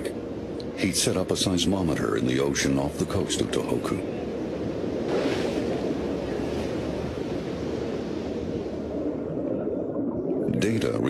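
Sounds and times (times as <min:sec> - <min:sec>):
ocean waves washing: 0:00.0 - 0:11.0.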